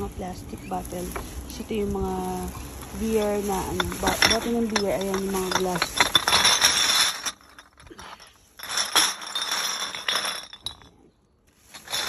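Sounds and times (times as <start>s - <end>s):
plastic bags rustling: 0.0s - 10.9s, 11.5s - 12.0s
bottles clinking together: 2.4s - 10.9s.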